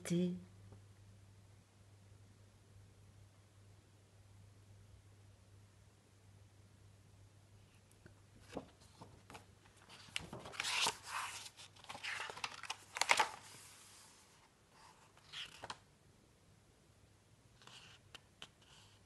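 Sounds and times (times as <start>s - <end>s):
book pages turning: 8.4s - 15.8s.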